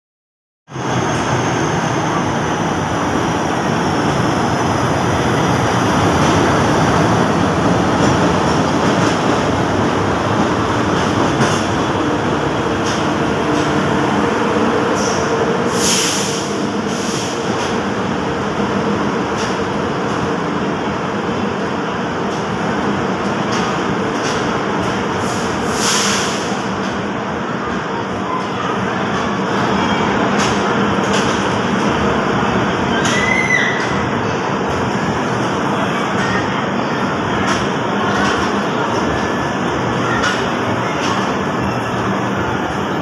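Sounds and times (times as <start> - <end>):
train wheels rumbling on rail: 0.7 - 43.0
brief high squeal: 32.9 - 34.0.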